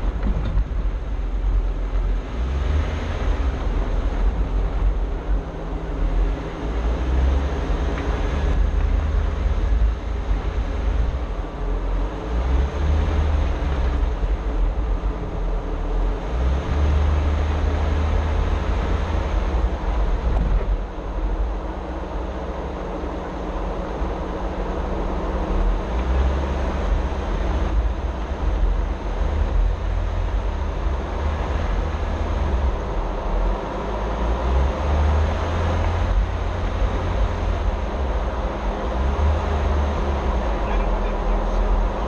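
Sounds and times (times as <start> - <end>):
car engine and tyres rumbling: 0.0 - 42.0.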